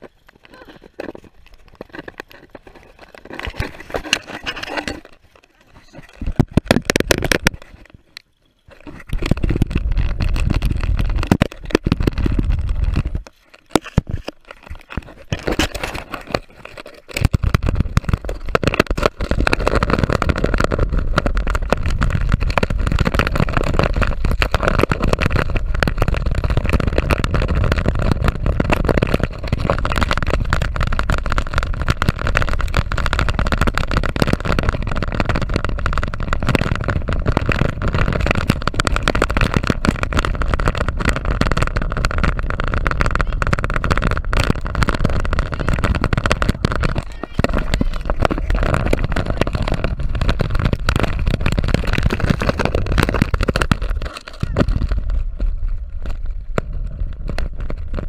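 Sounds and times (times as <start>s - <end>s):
camera rubbing against fabric: 0.7s - 8.1s, 8.7s - 25.3s, 41.2s - 55.4s
deep rumble: 9.3s - 13.3s, 17.4s - 58.0s.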